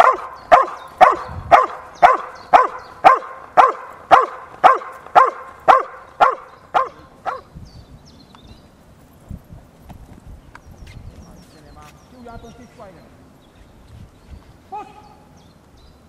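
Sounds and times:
dog barking: 0.0 - 7.5.

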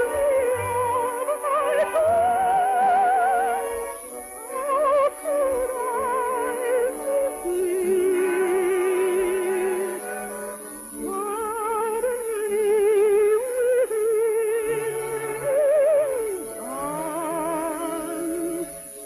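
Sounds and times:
orchestral music with vibrato: 0.0 - 19.0.

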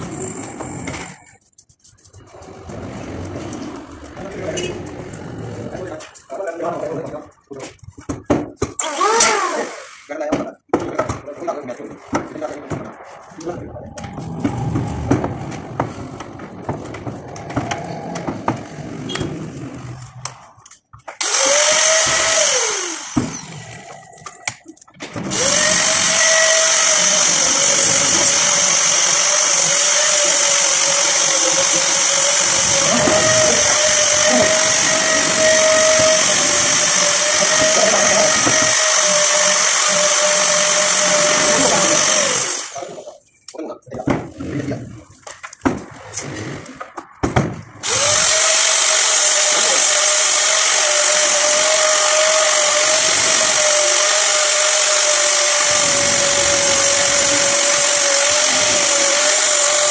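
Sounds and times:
angle grinder whining: 0.0 - 1.3, 8.8 - 10.1, 11.6 - 43.2, 47.8 - 59.9.

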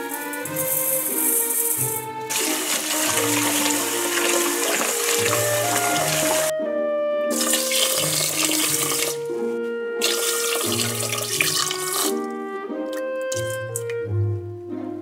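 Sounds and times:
background music: 0.0 - 15.0
tap water running into pot: 0.6 - 6.5, 7.3 - 9.2, 10.0 - 12.3, 12.9 - 14.0.

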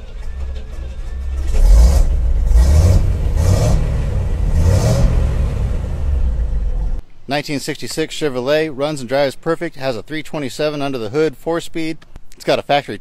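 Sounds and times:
truck engine idling and revving: 0.0 - 7.0.

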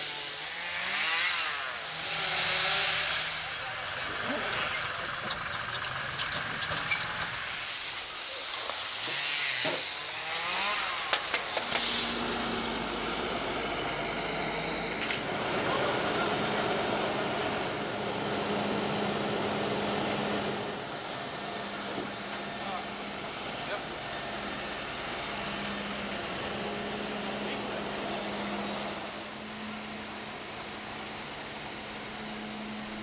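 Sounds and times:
tractor engine running: 3.2 - 7.6.

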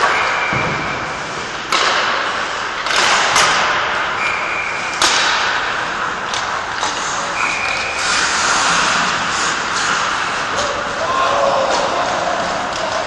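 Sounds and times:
pucks and sticks knocking: 0.0 - 4.4, 5.0 - 8.0
skate blades scraping on ice: 6.7 - 13.0.

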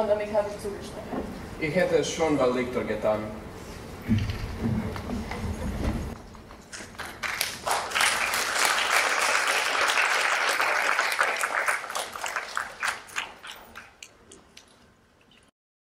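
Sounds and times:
audience applauding: 6.9 - 14.1.

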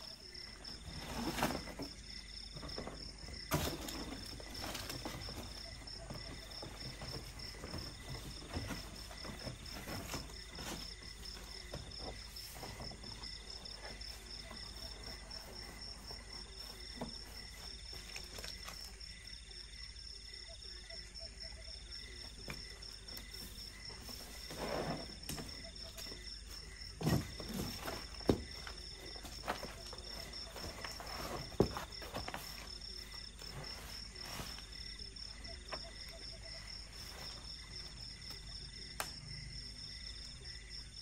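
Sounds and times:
foam mat rustling and crackling: 0.0 - 19.0, 23.0 - 35.6
crickets trilling: 0.0 - 41.0.

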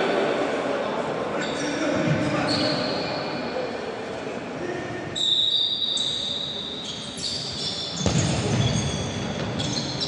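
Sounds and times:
shoes squealing on court floor: 2.4 - 3.4, 5.2 - 10.0
ball thump echoing: 8.0 - 9.7.

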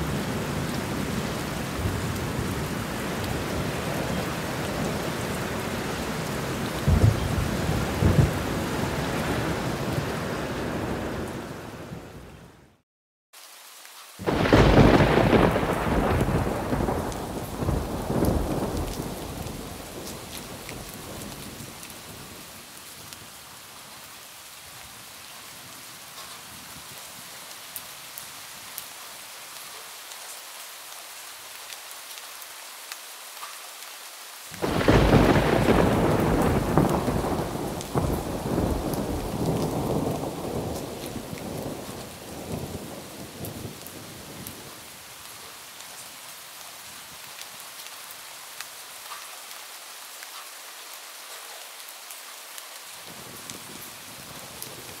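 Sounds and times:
steady rain: 0.0 - 55.0
thunder rolling: 6.8 - 9.6, 14.2 - 21.3, 34.6 - 43.8.

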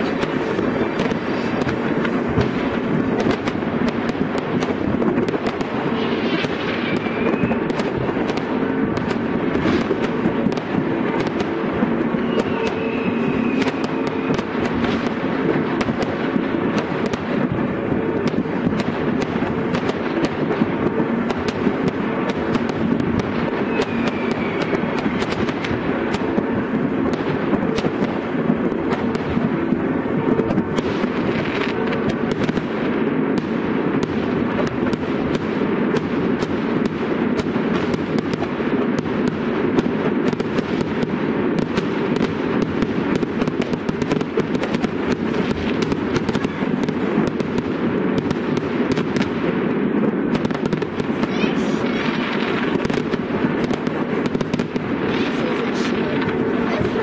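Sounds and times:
continuous low rumble: 0.0 - 57.0
fireworks bangs and crackles: 0.0 - 57.0.

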